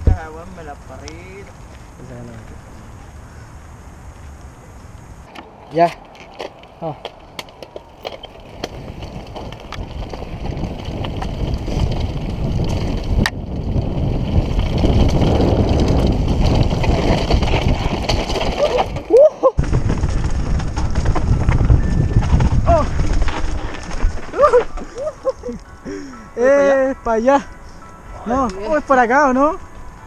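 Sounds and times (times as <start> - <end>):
wind rushing over microphone: 0.0 - 26.3
bike rattling over ground: 5.2 - 25.8
tyre rumble: 5.4 - 25.4.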